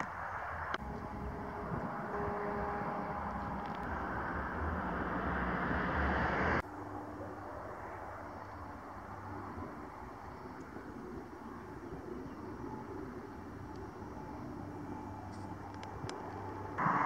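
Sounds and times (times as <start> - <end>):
background hum: 0.0 - 17.0
passing cars hiss: 0.5 - 10.0, 16.4 - 17.0.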